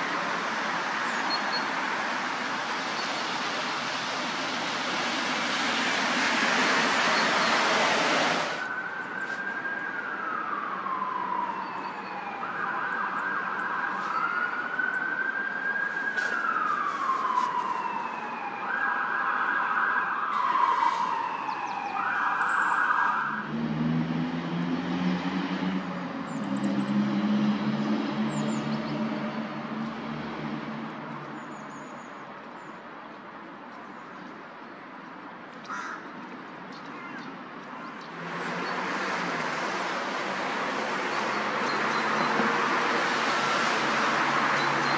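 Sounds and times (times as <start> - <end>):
loud rushing noise: 4.6 - 8.7
siren sweeping tone: 5.1 - 25.2.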